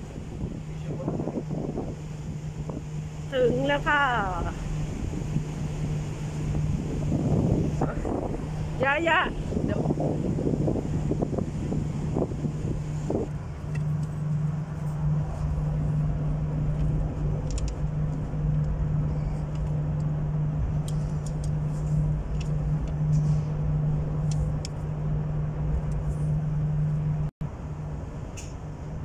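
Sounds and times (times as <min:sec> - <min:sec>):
ferry engine hum: 0:00.0 - 0:29.0.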